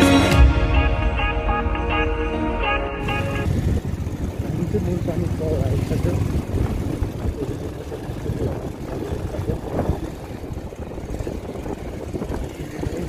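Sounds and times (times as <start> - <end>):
vehicle rumbling on unpaved road: 2.6 - 13.0.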